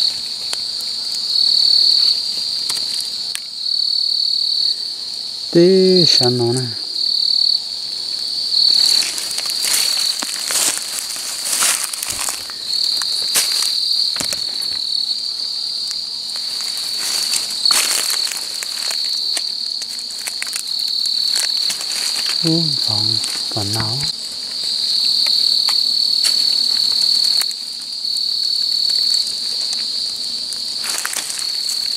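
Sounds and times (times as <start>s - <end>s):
night insects trilling: 0.0s - 31.9s
rustling leaf litter: 7.7s - 31.9s.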